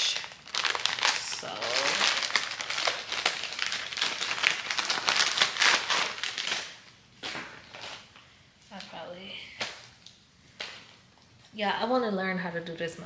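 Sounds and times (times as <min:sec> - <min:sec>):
plastic packaging crinkling: 0:00.0 - 0:09.0.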